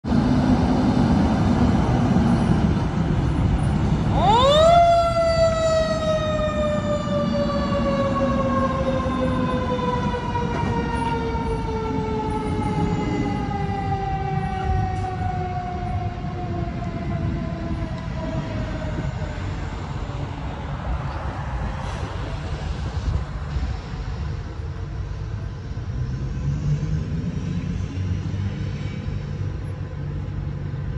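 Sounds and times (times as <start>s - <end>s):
fire truck diesel engine rumbling: 0.1s - 26.4s.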